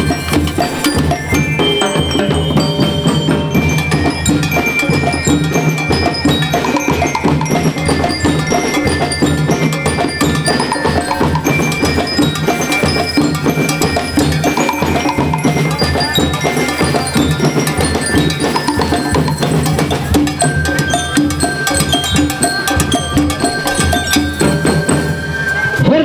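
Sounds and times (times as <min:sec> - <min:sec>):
metallic bell tones: 0:00.0 - 0:25.8
drums beating: 0:00.0 - 0:26.0
brass instruments: 0:01.4 - 0:04.1.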